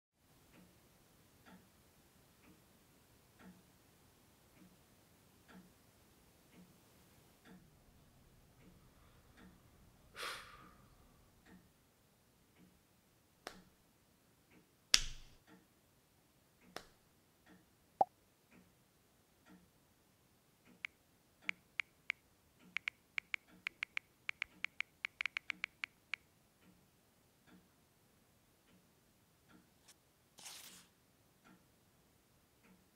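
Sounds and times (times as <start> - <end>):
faint clock ticking: 0.2 - 10.1, 10.7 - 14.8, 15.4 - 30.0, 31.2 - 32.9
sharp clicks: 20.7 - 26.2
smartphone typing clicks: 20.8 - 26.2.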